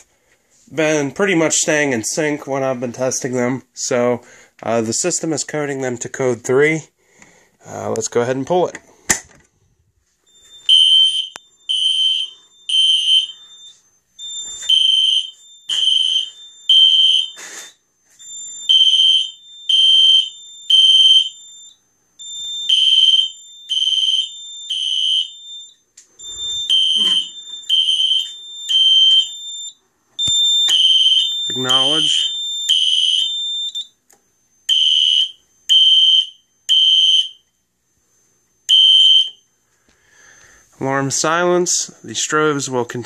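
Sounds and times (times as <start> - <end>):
steady high alarm tone: 10.0 - 43.0
fire alarm horn blasts: 10.4 - 34.0, 34.6 - 37.5, 38.6 - 39.4.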